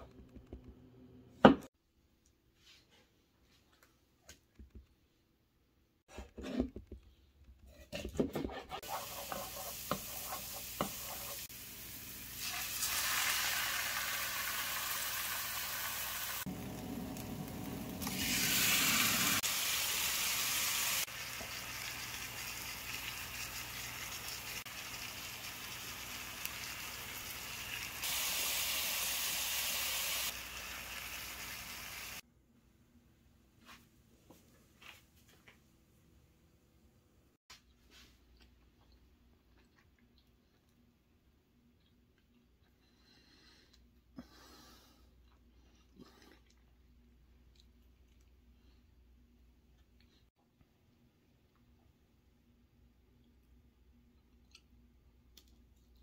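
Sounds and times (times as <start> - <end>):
food sizzling in hot oil: 8.8 - 32.2.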